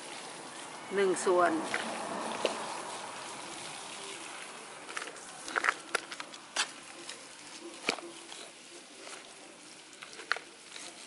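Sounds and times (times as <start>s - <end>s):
soil pouring hiss: 0.0s - 11.0s.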